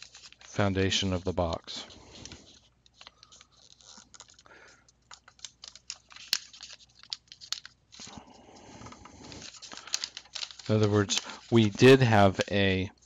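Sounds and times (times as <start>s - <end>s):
paper rustling and crinkling: 0.0s - 13.0s
paper creases ticking: 9.2s - 13.0s.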